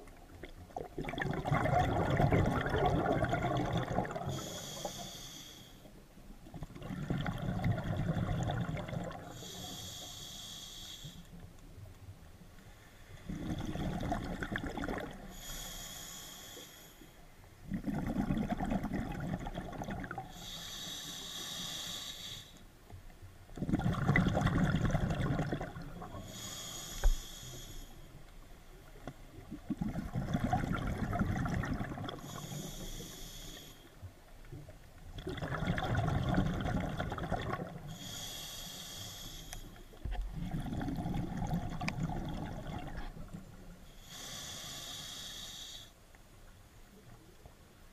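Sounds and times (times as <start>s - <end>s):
diver breathing through regulator: 4.2s - 5.9s, 9.3s - 11.4s, 15.2s - 17.2s, 20.2s - 22.6s, 26.1s - 28.2s, 32.0s - 34.0s, 37.8s - 40.0s, 43.9s - 46.0s.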